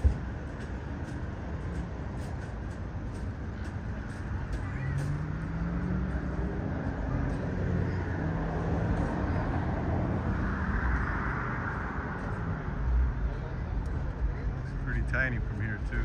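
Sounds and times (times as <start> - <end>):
road noise: 0.0 - 16.0
vehicle engine hum: 0.0 - 16.0
vehicle passing: 4.1 - 16.0.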